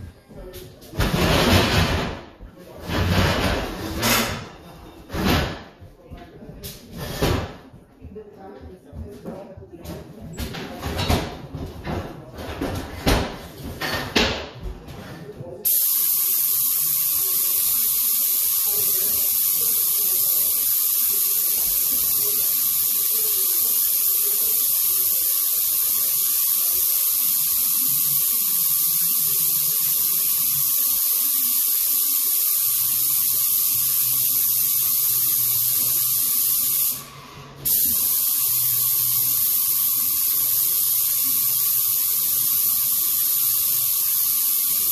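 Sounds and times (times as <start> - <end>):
paint spray gun hissing: 15.6 - 44.9.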